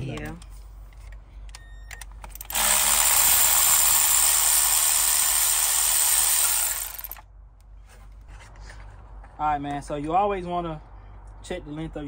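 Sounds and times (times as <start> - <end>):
cordless electric ratchet running: 2.3 - 7.2.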